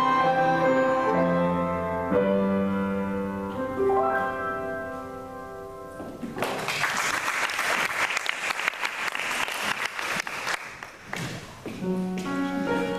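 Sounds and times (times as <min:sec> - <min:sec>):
piano notes: 0:00.0 - 0:06.7, 0:11.0 - 0:12.9
applause: 0:06.4 - 0:11.4.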